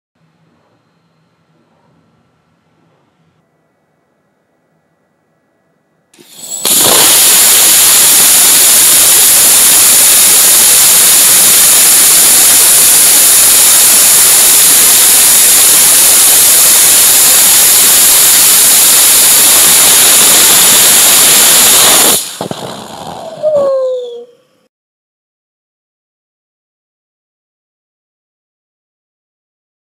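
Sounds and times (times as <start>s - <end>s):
rocket engine hissing rush: 6.2s - 23.8s.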